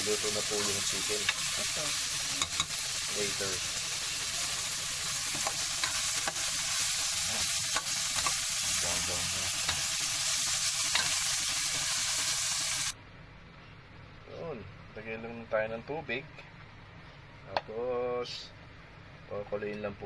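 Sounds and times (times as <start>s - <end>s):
chicken sizzling in a pot: 0.0s - 13.0s.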